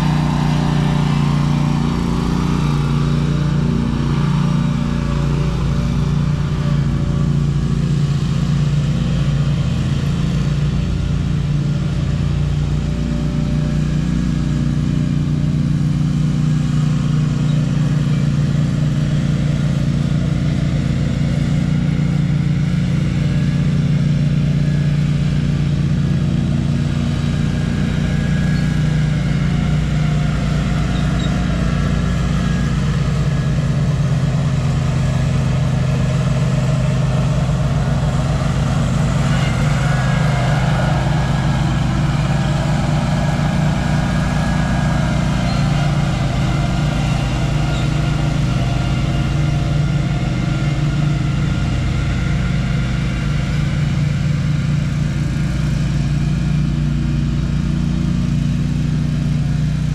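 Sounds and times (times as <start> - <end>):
small engine running: 0.0 - 59.9.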